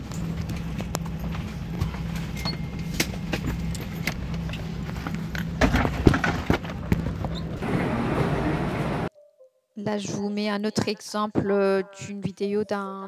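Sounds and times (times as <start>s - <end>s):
airliner cabin hum: 0.0s - 9.1s.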